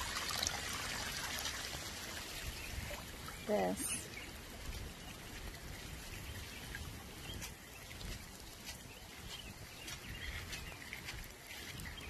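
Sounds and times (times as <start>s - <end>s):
floodwater rushing: 0.0s - 8.8s.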